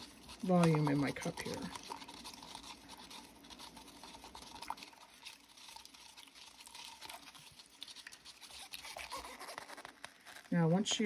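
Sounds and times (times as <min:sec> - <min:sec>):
stir stick scraping in plastic cup: 0:00.0 - 0:11.0.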